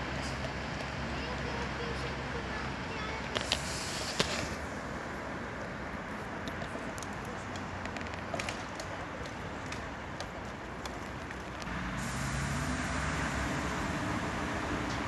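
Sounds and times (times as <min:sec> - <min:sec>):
hum of passing cars: 0:00.0 - 0:15.0
vehicle low engine hum: 0:00.0 - 0:15.0.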